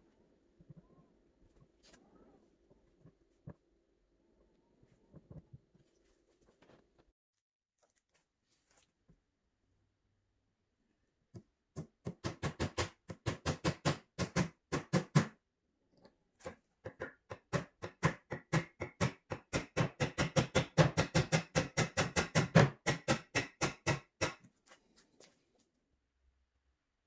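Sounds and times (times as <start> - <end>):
nails tapped into wood: 16.9 - 24.4.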